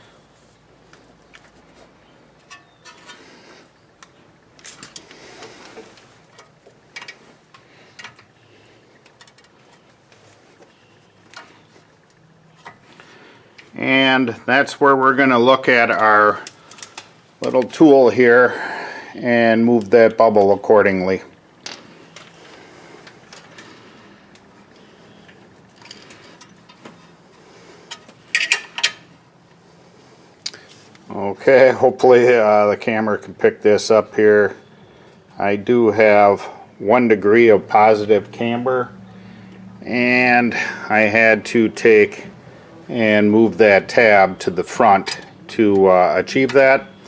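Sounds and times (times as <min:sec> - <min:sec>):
wrenches clicking on metal bolt: 0:44.9 - 0:45.4.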